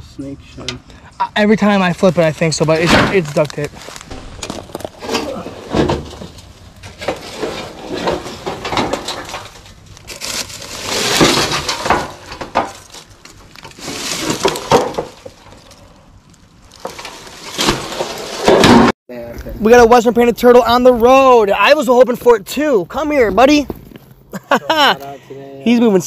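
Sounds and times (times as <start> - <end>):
wood and debris crunching: 2.6 - 19.8, 20.4 - 24.8
scraping bursts: 2.7 - 18.9.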